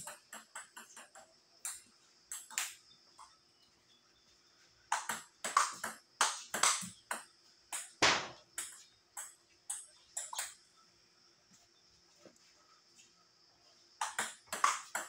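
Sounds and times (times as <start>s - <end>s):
table tennis ball clicking: 0.0s - 2.8s, 4.9s - 10.6s, 14.0s - 15.0s.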